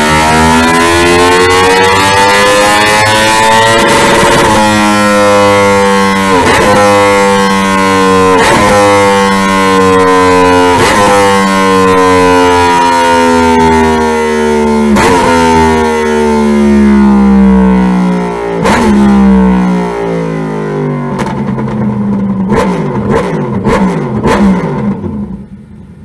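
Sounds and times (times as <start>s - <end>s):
motorcycle engine winding down: 0.0s - 25.9s
exhaust crackles and pops: 21.1s - 25.2s.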